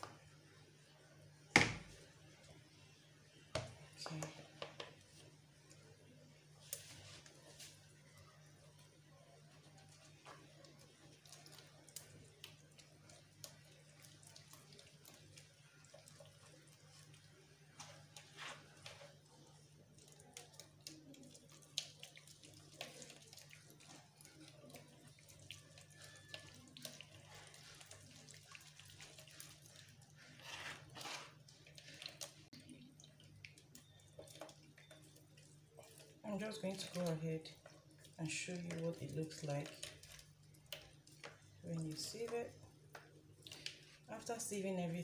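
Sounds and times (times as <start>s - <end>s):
juice dripping: 1.7s - 45.0s
ladle scraping sieve: 30.2s - 32.4s.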